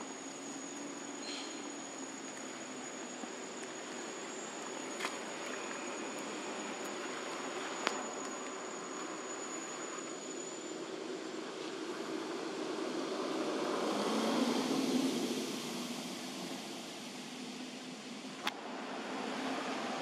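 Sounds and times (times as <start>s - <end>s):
high-pitched insect trill: 0.0s - 18.4s
steady background hiss: 0.0s - 20.0s.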